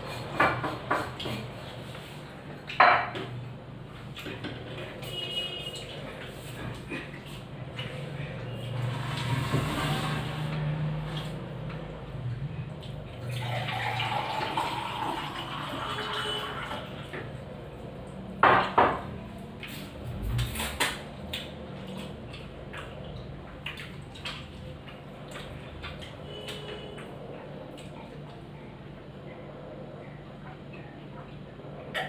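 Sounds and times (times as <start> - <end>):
wet food mixed by hand: 3.9 - 13.7, 19.2 - 28.4.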